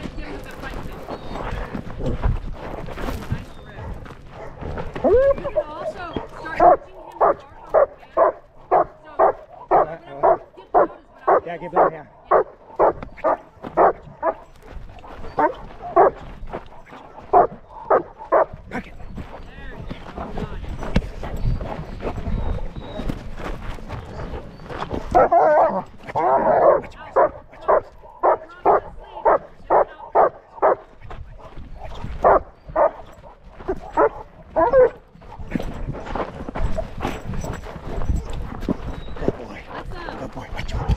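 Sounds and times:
dog barking: 4.4s - 4.6s, 6.5s - 14.5s, 15.4s - 16.2s, 17.3s - 18.5s, 25.0s - 30.9s, 32.2s - 35.0s.

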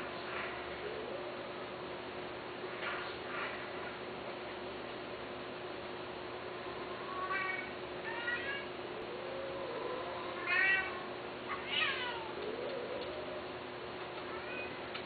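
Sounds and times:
cats meowing: 6.5s - 13.5s, 14.1s - 15.0s.

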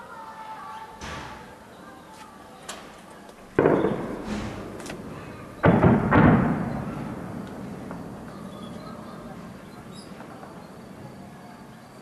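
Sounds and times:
shelling explosions booming: 3.6s - 11.0s.

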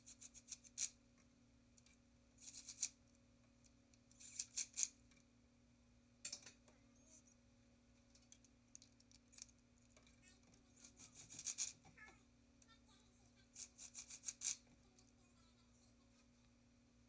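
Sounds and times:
ratchet tool clicking: 13.6s - 14.6s.

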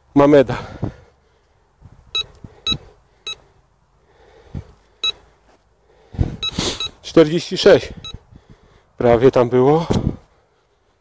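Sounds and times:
metal detector short beeps: 2.1s - 3.4s, 5.0s - 5.2s, 6.4s - 7.1s, 7.9s - 8.2s.

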